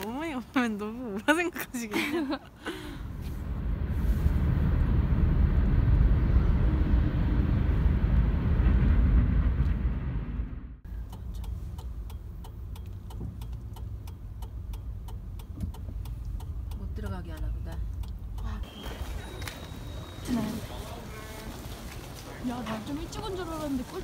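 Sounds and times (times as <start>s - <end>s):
road rumble inside car: 3.0s - 24.0s
turn signal ticking: 10.8s - 20.2s.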